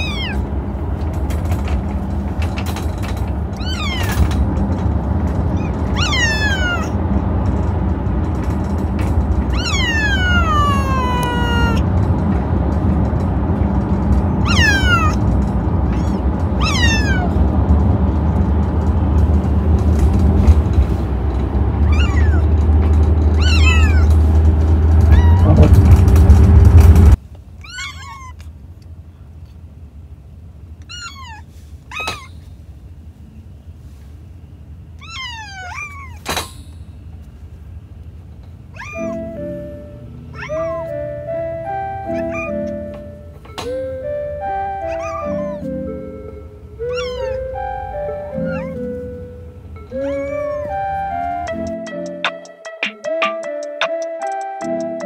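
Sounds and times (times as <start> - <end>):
kittens meowing: 0.0 - 0.6, 3.6 - 4.6, 5.4 - 7.2, 9.4 - 12.2, 14.4 - 17.5, 21.8 - 25.7, 27.6 - 28.5, 30.8 - 32.4, 35.0 - 36.4, 38.7 - 51.8
loud low rumble: 0.0 - 27.2
music: 40.9 - 55.0.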